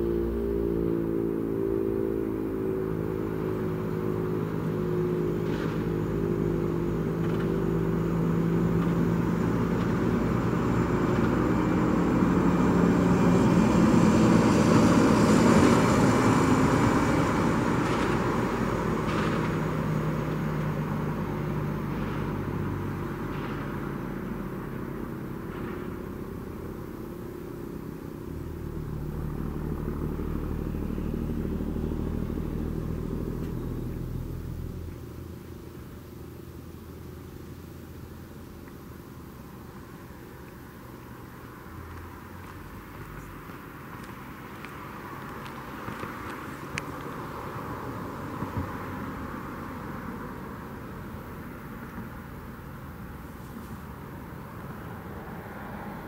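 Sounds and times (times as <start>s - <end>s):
warning siren steady tone: 0.0s - 11.7s, 26.3s - 34.9s.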